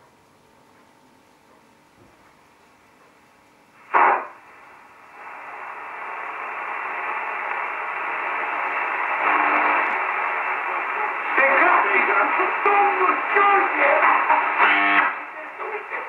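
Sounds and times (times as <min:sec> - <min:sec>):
radio static hiss: 0:02.0 - 0:16.0
radio speaker crackling pop: 0:03.8 - 0:04.4, 0:07.4 - 0:08.2.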